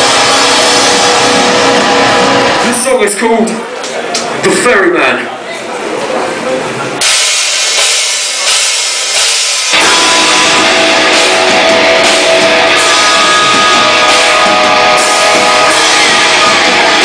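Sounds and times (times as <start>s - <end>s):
live heavy rock band: 0.0s - 3.2s, 7.0s - 17.0s
distorted electric guitars: 0.0s - 3.8s, 7.0s - 17.0s
drums: 0.0s - 4.7s, 6.1s - 17.0s.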